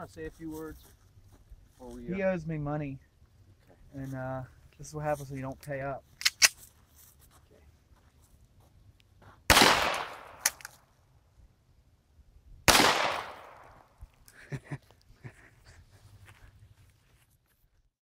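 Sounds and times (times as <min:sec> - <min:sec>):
pistol shots with echo: 0:09.5 - 0:10.7, 0:12.7 - 0:13.9.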